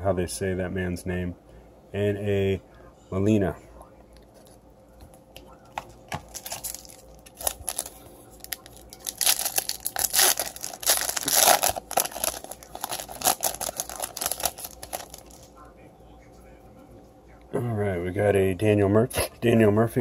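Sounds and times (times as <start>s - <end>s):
foil wrapper tearing and crinkling: 6.3s - 15.4s.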